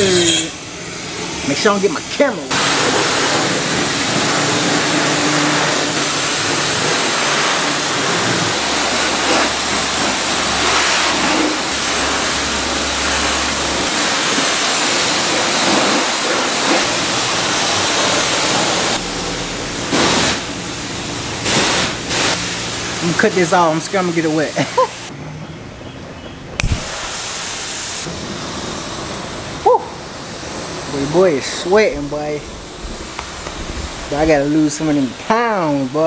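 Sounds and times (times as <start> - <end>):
pressure washer spraying water: 0.0 - 25.1, 26.6 - 36.0
low pump hum: 6.7 - 23.7, 28.2 - 35.4.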